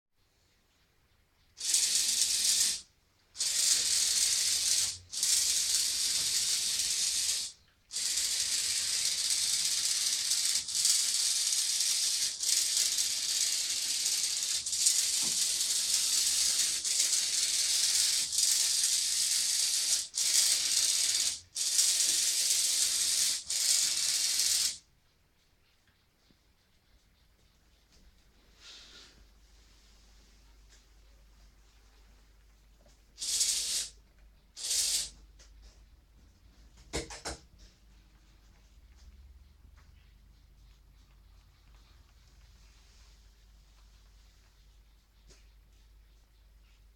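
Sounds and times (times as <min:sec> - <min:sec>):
toy robot motors whirring: 0:01.6 - 0:24.8, 0:33.2 - 0:35.2.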